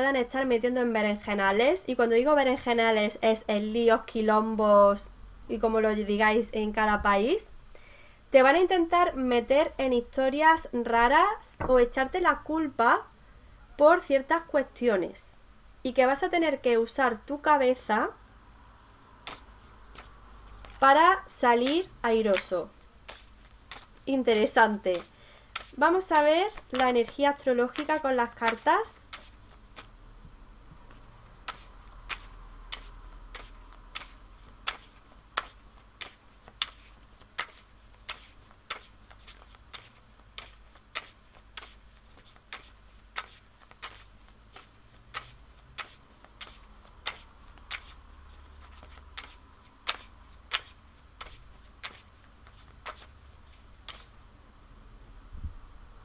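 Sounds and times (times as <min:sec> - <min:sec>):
cards being shuffled: 0:18.8 - 0:29.9, 0:30.9 - 0:54.2.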